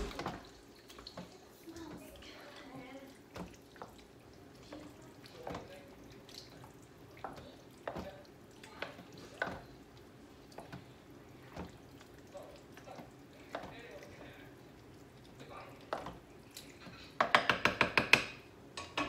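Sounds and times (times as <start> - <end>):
wet squelches of stirred tomatoes: 0.0 - 17.4
spoon knocking against pot: 17.2 - 19.0.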